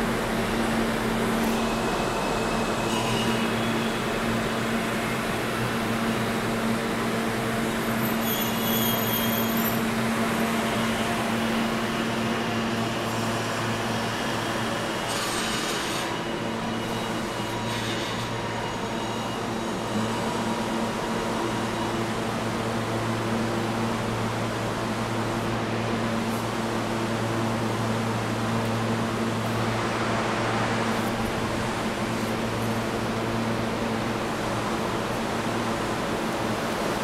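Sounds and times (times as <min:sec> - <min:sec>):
subway train idling hum: 0:00.0 - 0:37.0.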